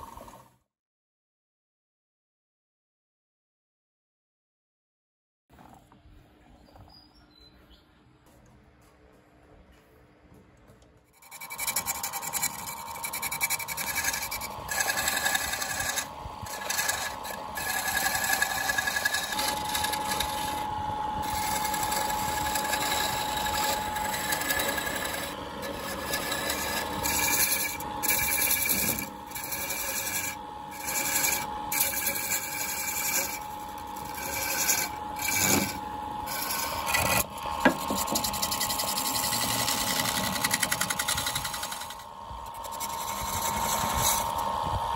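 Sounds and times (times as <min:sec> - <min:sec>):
lathe spinning: 0:11.2 - 0:44.9
turning tool scraping wood: 0:11.2 - 0:44.9.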